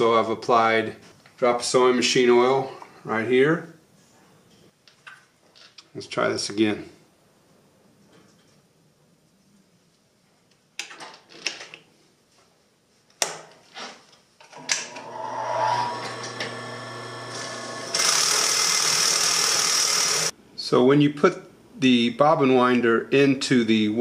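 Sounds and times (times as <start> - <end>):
sewing machine whirring: 14.5 - 20.3.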